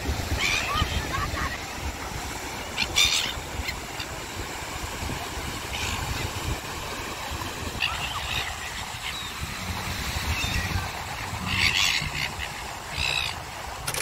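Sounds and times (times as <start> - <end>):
surf rumbling: 0.0 - 14.0
gulls squawking: 0.2 - 1.6, 2.6 - 4.3, 7.7 - 14.0.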